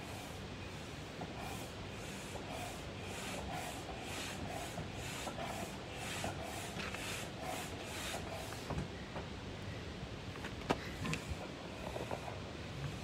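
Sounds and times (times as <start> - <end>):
hand air pump strokes: 1.4 - 8.7.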